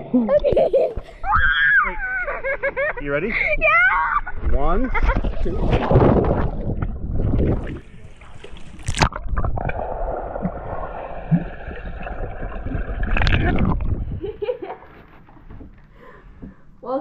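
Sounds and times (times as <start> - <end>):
underwater rushing and bubbling: 4.3 - 14.6.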